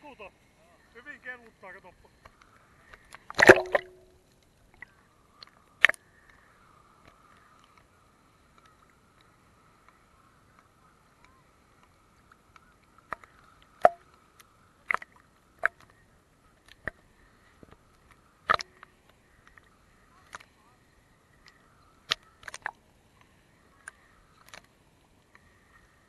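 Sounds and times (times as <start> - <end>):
faint steady tone: 0.0 - 26.0
small waves slapping camera housing: 3.2 - 4.1.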